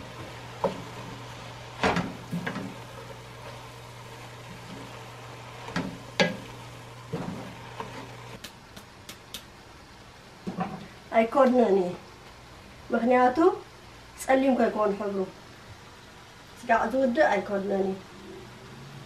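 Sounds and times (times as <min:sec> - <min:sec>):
wooden spoon stirring greens in pot: 0:00.0 - 0:08.4.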